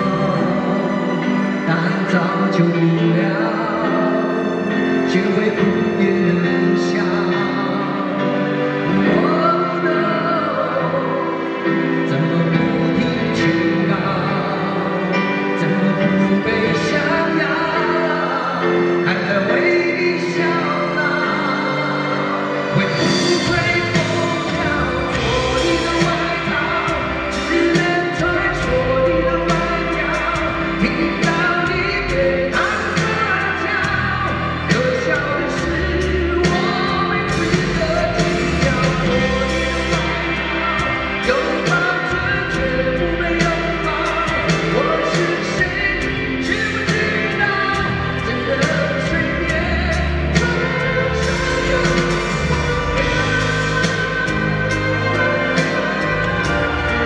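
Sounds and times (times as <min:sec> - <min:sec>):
amplified band playing: 0:00.0 - 0:57.0
man singing pop-rock: 0:00.0 - 0:57.0
steady drum beat: 0:22.9 - 0:57.0.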